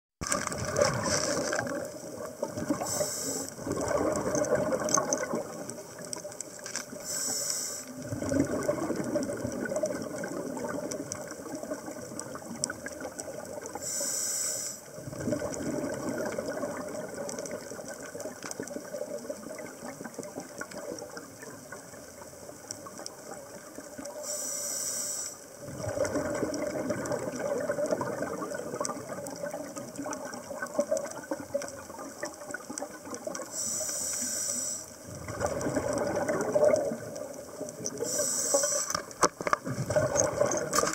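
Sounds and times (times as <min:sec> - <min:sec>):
bubbling exhale underwater: 0:00.2 - 0:06.2, 0:07.9 - 0:13.9, 0:15.0 - 0:22.2, 0:25.6 - 0:33.8, 0:35.0 - 0:40.9
hissing regulator inhale: 0:02.8 - 0:03.6, 0:07.0 - 0:08.0, 0:13.8 - 0:14.9, 0:24.2 - 0:25.5, 0:33.5 - 0:35.0, 0:38.0 - 0:39.0.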